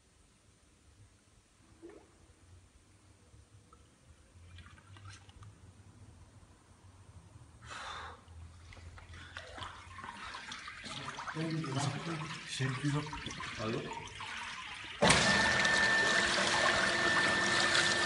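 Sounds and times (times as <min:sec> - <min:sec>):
water sloshing and trickling: 0:04.2 - 0:06.4, 0:08.2 - 0:18.0
water swish: 0:04.3 - 0:06.0, 0:08.2 - 0:18.0.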